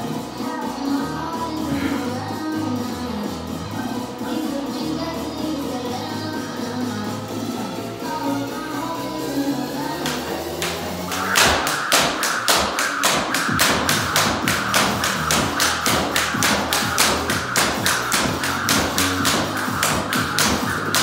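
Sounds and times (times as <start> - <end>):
background music: 0.0 - 21.0
jump rope slapping floor: 10.0 - 21.0.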